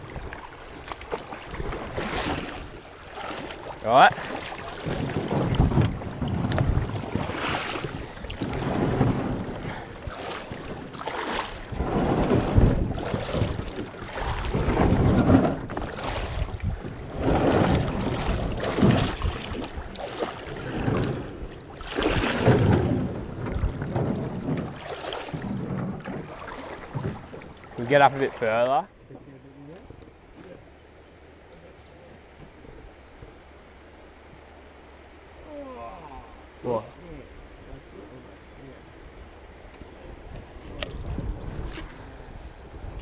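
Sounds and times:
water splashing along boat hull: 0.0s - 31.0s, 39.5s - 43.0s
wind buffeting microphone: 1.4s - 28.6s, 40.0s - 42.0s.

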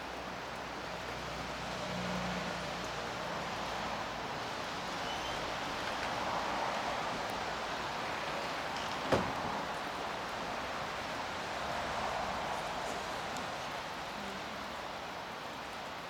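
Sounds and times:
steady outdoor hiss: 0.0s - 16.0s.

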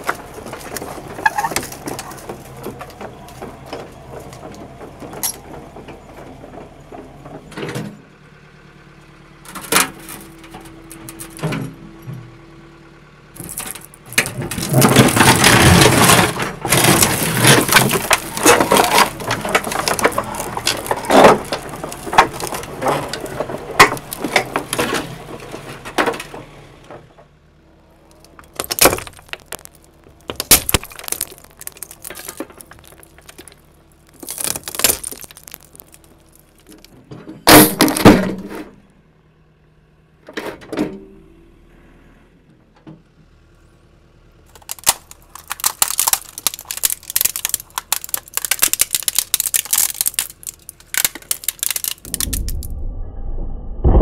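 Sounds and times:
balls cracking and crunching: 0.0s - 5.4s, 13.4s - 25.6s, 27.8s - 38.1s, 44.5s - 52.8s
low engine hum: 0.0s - 54.0s.

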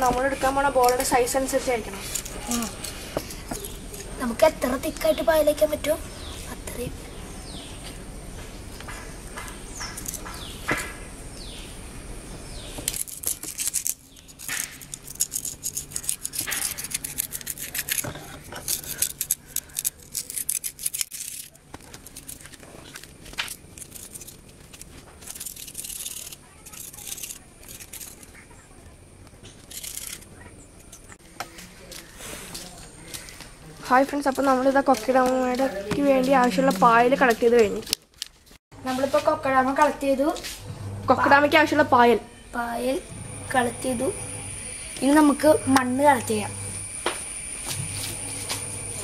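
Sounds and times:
moss being scraped and torn: 12.8s - 28.4s.

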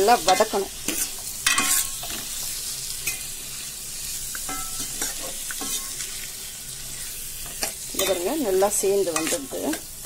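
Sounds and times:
vegetables sizzling in oil: 0.0s - 10.0s
spoon scraping and clinking pot: 0.2s - 2.2s, 4.4s - 6.2s, 7.4s - 8.3s, 9.1s - 9.8s.

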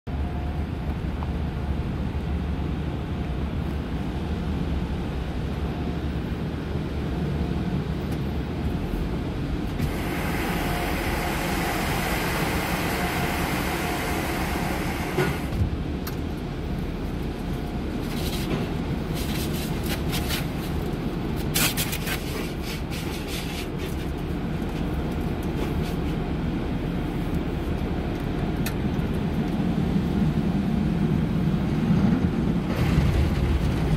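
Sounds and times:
hiss: 9.8s - 15.5s.

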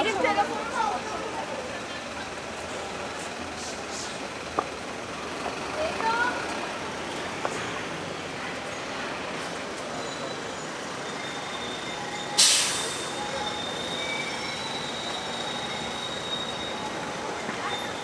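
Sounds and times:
traffic hum: 0.0s - 18.0s
tram wheels squealing on rails: 7.4s - 18.0s
loud hiss of air: 12.4s - 13.2s.

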